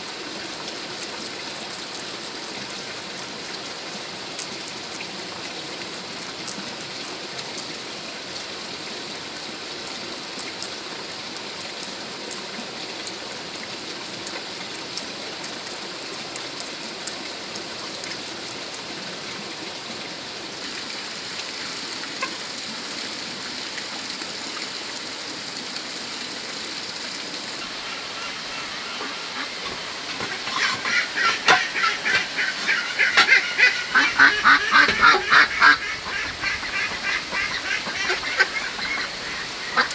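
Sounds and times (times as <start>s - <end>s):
waterfowl honking: 27.6s - 39.9s.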